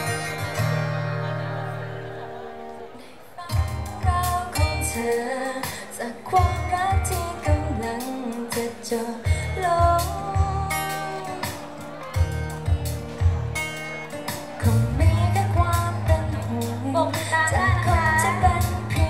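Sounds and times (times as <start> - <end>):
backing track with drums and bass: 0.0 - 1.8, 3.5 - 19.0
women singing pop song: 3.4 - 11.8, 14.6 - 19.0.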